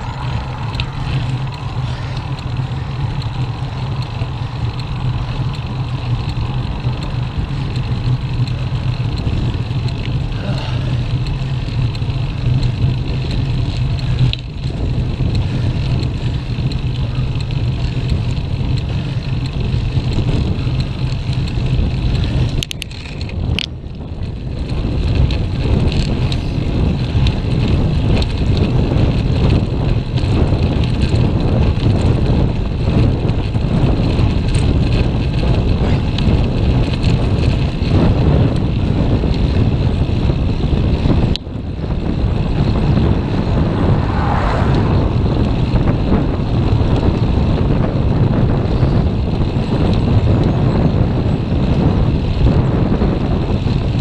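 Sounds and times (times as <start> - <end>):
road rumble: 0.0 - 54.0
wind rushing over microphone: 0.0 - 54.0.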